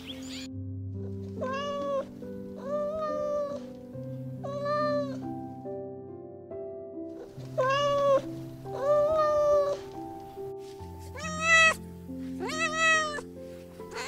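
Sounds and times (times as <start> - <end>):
soft background music: 0.0 - 14.0
cat meowing: 1.3 - 3.7, 4.4 - 5.2, 7.5 - 9.8, 11.1 - 11.8, 12.4 - 14.0.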